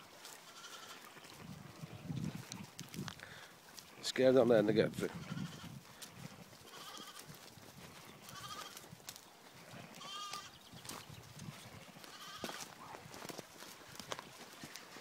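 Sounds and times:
lambs bleating: 0:00.3 - 0:02.0, 0:05.1 - 0:07.4, 0:08.0 - 0:08.9, 0:09.6 - 0:10.6, 0:12.0 - 0:12.9.

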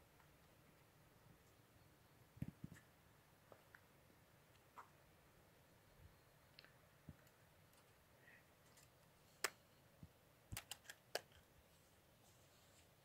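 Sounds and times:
sharp clicks: 0:10.5 - 0:11.4.

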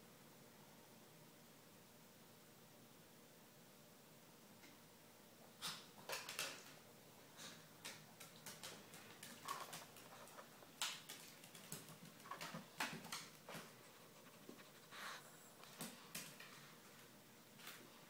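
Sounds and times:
dog paws tapping on tiles: 0:05.7 - 0:17.9.

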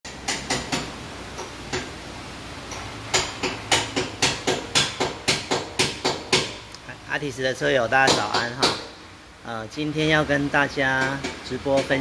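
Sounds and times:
sharp knocks: 0:00.1 - 0:01.9, 0:02.7 - 0:06.7, 0:08.0 - 0:09.0.

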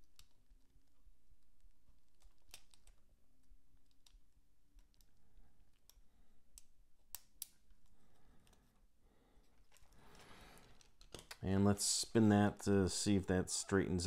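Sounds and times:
plastic parts clicking and tapping: 0:00.0 - 0:08.7, 0:09.4 - 0:11.4.

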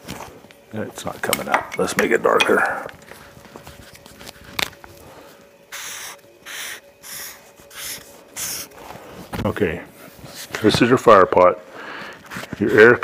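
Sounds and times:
pen scratching on paper: 0:05.8 - 0:08.7.

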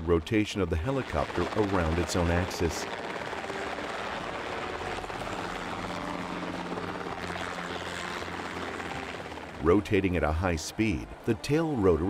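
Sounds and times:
helicopter rotors beating: 0:00.0 - 0:12.0
helicopter piston engine: 0:01.0 - 0:11.3.

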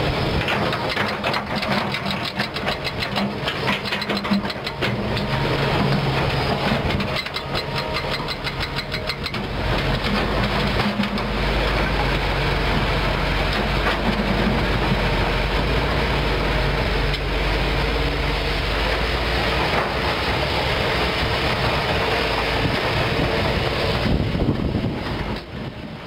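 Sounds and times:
excavator diesel engine: 0:00.0 - 0:26.0
fast clicks and rattles: 0:00.4 - 0:11.4.

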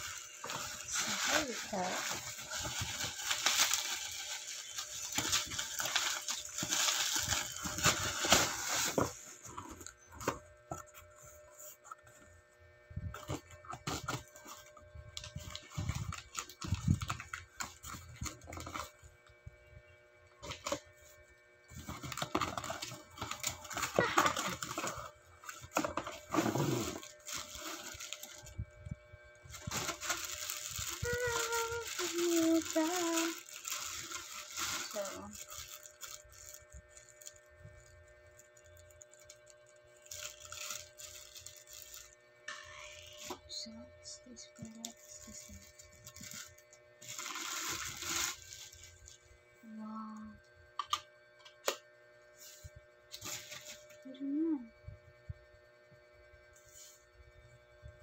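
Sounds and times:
bubble wrap rustling and crinkling: 0:00.0 - 0:12.3, 0:13.0 - 0:19.0, 0:20.4 - 0:28.7, 0:29.4 - 0:49.8, 0:52.4 - 0:54.2.

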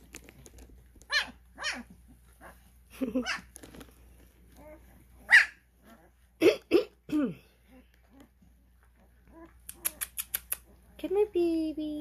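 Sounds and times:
puppies whining and squealing: 0:01.0 - 0:06.4, 0:07.6 - 0:11.0.

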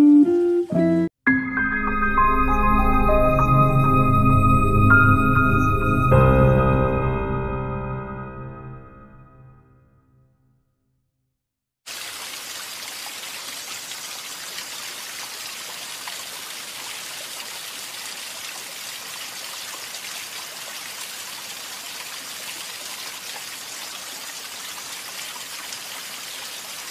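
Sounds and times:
running water hiss: 0:11.9 - 0:26.9.

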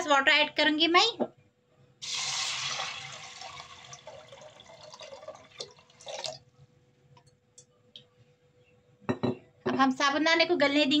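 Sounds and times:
water pouring into metal pot: 0:02.0 - 0:06.4
water trickling and dripping: 0:03.0 - 0:06.4.

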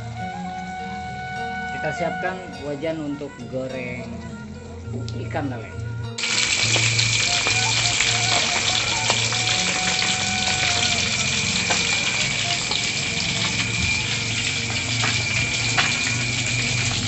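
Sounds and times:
fish sizzling in hot oil: 0:06.2 - 0:17.0
oil popping: 0:06.2 - 0:17.0.

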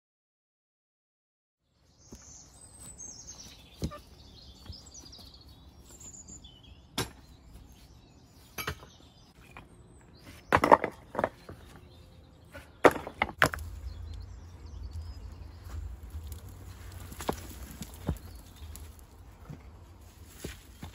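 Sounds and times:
birds chirping: 0:01.7 - 0:20.9
stones clacking together: 0:12.8 - 0:14.2, 0:15.7 - 0:19.7
low rumble: 0:13.4 - 0:20.0.

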